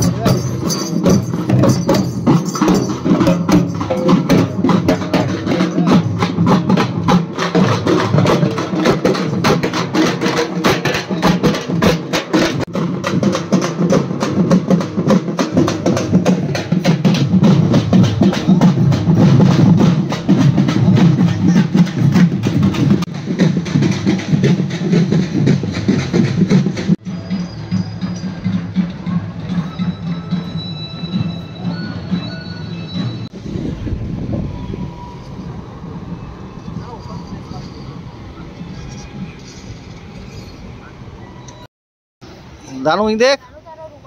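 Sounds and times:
drummers beating large drums: 0.0s - 33.4s.

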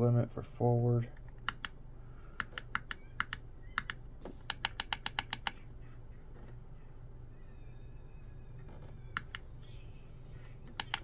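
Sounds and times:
push buttons clicking: 1.2s - 1.8s, 2.4s - 5.6s, 9.1s - 9.5s, 10.7s - 11.0s.

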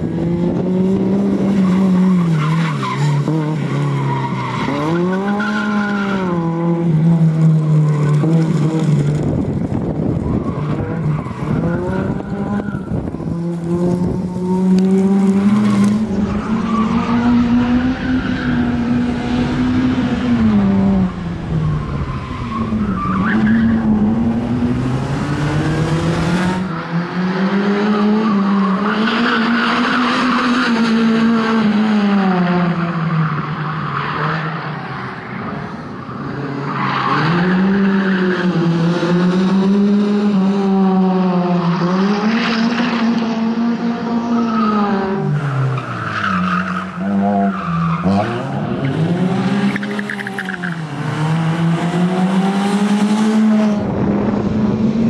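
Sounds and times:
car engine revving hard: 23.4s - 32.8s, 47.9s - 55.0s.

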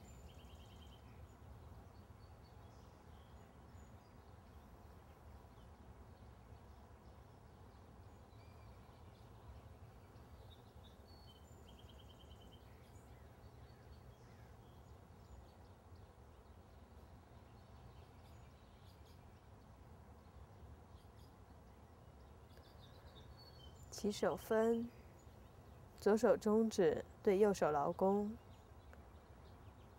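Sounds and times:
faint bird chirps: 0.0s - 29.9s
faint low hum: 0.0s - 29.9s.

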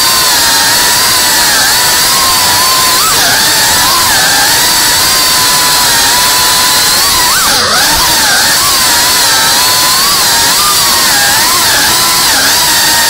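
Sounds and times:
drone motors whining: 0.0s - 13.0s.

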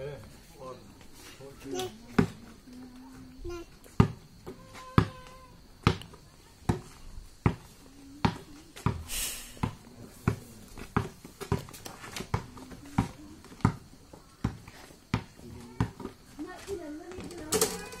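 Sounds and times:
basketball bouncing on dirt: 2.1s - 2.4s, 3.9s - 17.4s
brief scraping hiss: 9.1s - 9.6s.

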